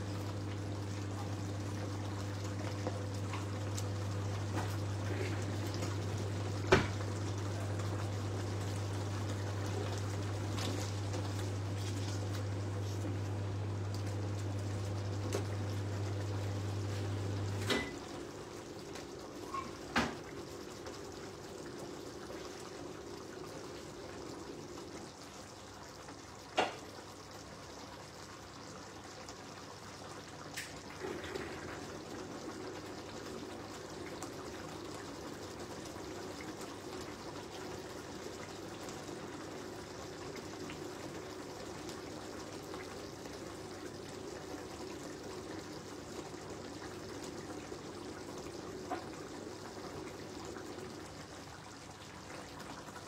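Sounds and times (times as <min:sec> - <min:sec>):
sauce bubbling in a pan: 0:00.0 - 0:53.0.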